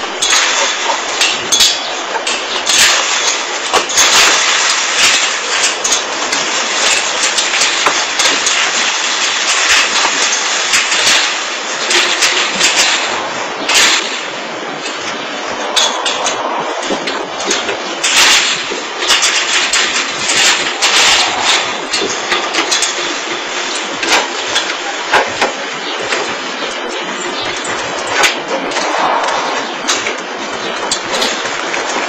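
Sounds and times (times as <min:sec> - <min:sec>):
chain-link gate rattling: 0:00.0 - 0:32.0
steady loud hiss: 0:00.0 - 0:32.0.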